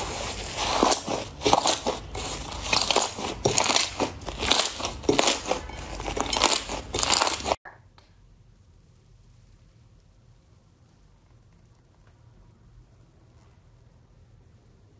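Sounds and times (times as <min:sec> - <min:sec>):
slime crackling and popping: 0:00.2 - 0:07.6.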